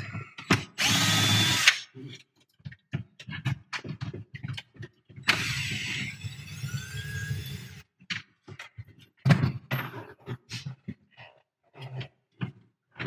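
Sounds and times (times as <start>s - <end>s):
cordless drill whirring: 0.8s - 1.8s, 5.3s - 7.8s.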